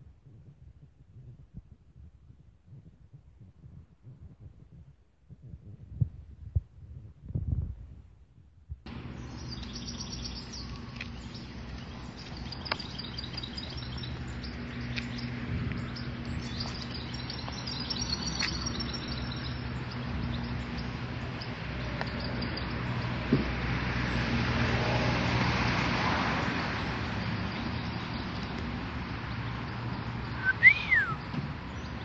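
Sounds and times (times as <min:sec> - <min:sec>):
small birds chirping: 0:08.9 - 0:24.6, 0:26.4 - 0:32.0.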